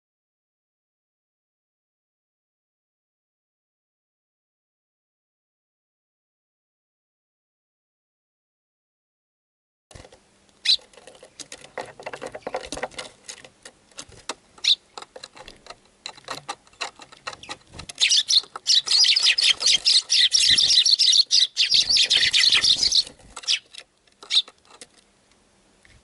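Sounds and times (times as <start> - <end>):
bird feet tapping on wooden feeder: 10.0 - 21.1
sparrows chirping and squabbling: 10.6 - 13.2, 14.0 - 15.6, 16.2 - 24.8.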